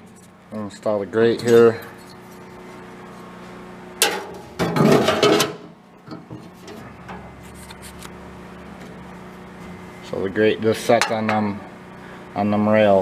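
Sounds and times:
metal rattling and scraping: 0:04.0 - 0:05.6
metal grate clanking: 0:04.0 - 0:07.2.

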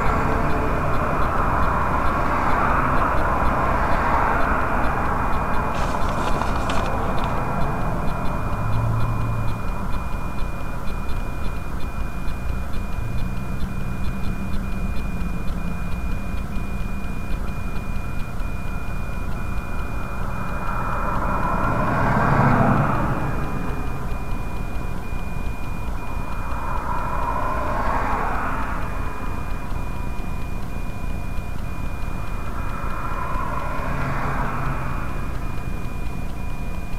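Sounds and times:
vehicle passing on highway: 0:00.0 - 0:10.5, 0:19.8 - 0:36.9
steady low rumble: 0:00.0 - 0:15.6, 0:22.6 - 0:36.9.

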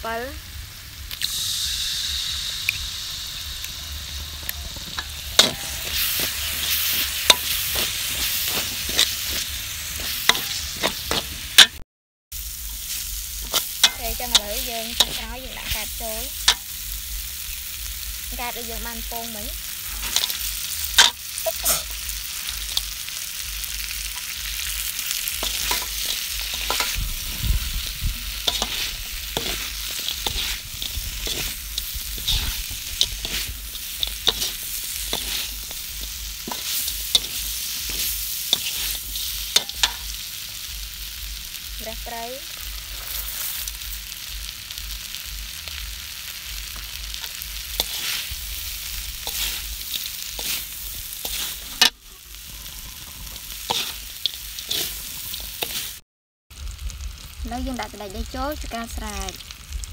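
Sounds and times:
food sizzling in a wok: 0:00.0 - 0:59.9
metal spatula scraping a wok: 0:04.0 - 0:11.8, 0:12.6 - 0:16.9, 0:19.6 - 0:23.1, 0:24.5 - 0:40.3, 0:42.5 - 0:44.0, 0:46.7 - 0:56.0.

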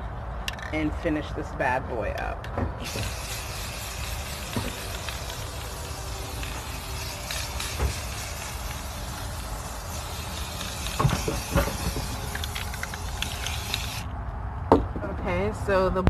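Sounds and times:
aerosol spray can hissing: 0:02.8 - 0:14.1.

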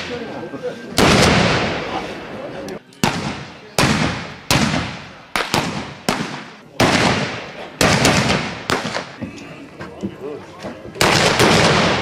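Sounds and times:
black-powder gunshots: 0:01.0 - 0:02.0, 0:03.0 - 0:09.2, 0:11.0 - 0:12.0.

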